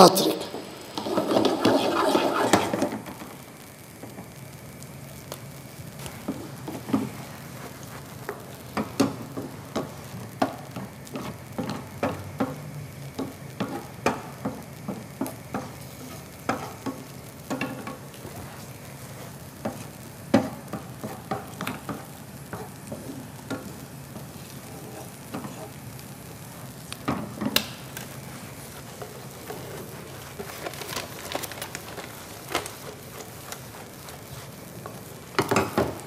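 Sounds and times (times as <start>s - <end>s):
faint sizzle: 0.0s - 36.0s
spatula scraping frying pan: 0.9s - 3.0s, 13.6s - 36.0s.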